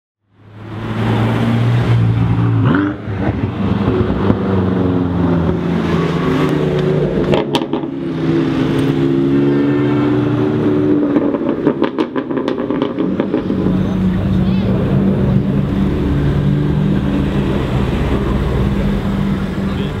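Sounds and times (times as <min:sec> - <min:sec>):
cars driving past: 0:00.3 - 0:20.0
sharp exhaust pops: 0:11.1 - 0:13.8.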